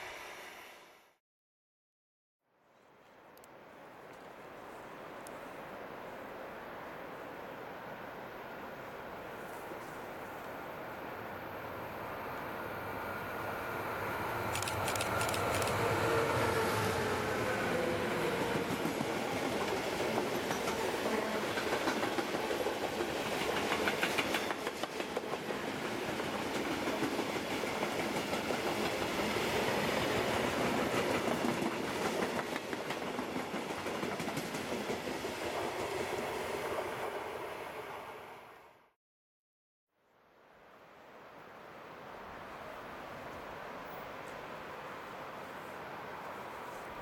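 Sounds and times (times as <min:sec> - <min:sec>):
freight train passing: 0:00.0 - 0:01.1, 0:03.7 - 0:38.9.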